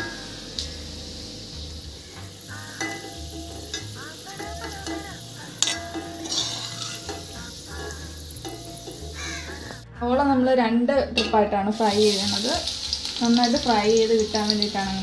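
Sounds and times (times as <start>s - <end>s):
onions sizzling in oil: 0.0s - 9.8s, 11.2s - 15.0s
faint background music: 0.0s - 15.0s
ladle scraping pan: 2.6s - 9.8s.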